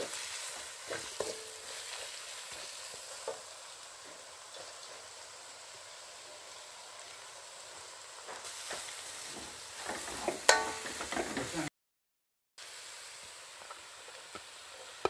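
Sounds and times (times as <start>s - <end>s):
spatula scraping wok: 0.0s - 5.1s, 8.2s - 11.7s
vegetables sizzling in oil: 0.0s - 11.7s, 12.6s - 15.0s.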